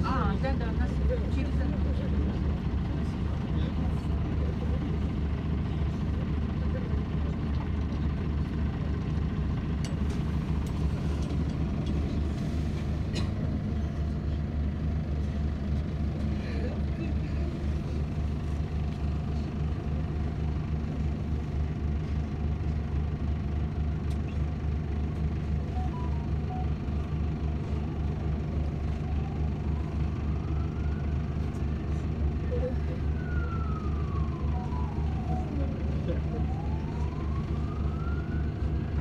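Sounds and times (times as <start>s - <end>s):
bus engine rumbling: 0.0s - 39.0s
distant siren: 25.7s - 27.0s, 28.8s - 31.5s, 32.6s - 39.0s.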